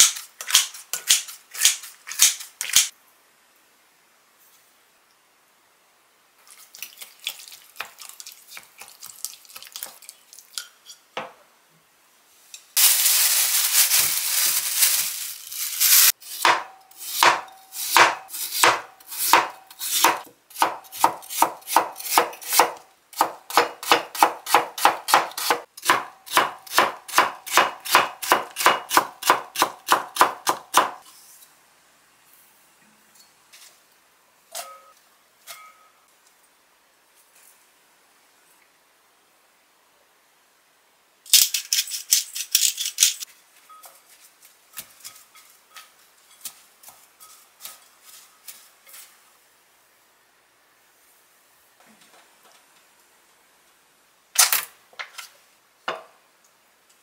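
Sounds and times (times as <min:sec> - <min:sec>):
knife chopping potato on board: 0:16.4 - 0:31.0.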